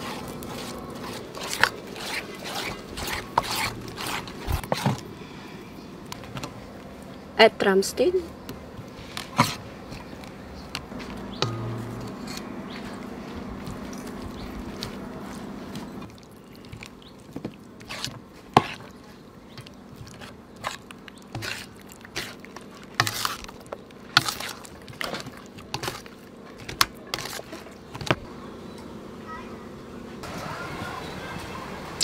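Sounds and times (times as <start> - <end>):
low steady hum: 0.0 - 30.4
hands squelching chicken in batter: 12.7 - 28.3.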